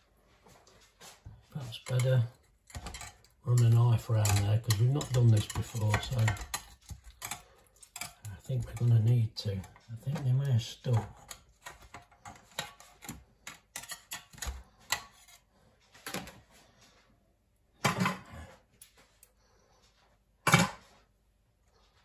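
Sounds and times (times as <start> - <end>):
utensils clinking: 1.6 - 15.3
knife scraping metal tin: 1.6 - 15.4.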